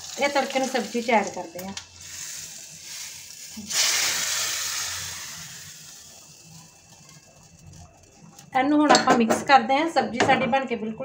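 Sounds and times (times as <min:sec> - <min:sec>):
hot oil sizzling in curry: 0:00.0 - 0:08.8.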